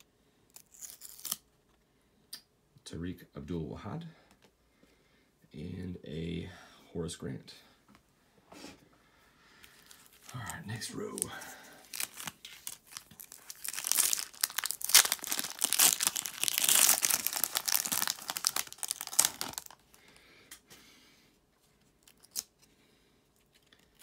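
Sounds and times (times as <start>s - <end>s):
foil wrapper tearing and crinkling: 0.0s - 1.4s, 9.8s - 19.9s, 22.0s - 22.5s.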